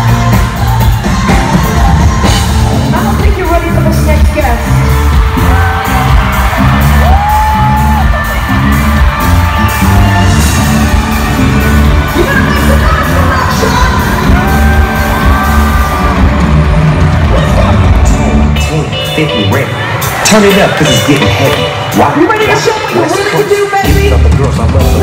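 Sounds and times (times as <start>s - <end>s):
loud live pop music: 0.0s - 25.0s
audience whooping: 4.7s - 18.8s.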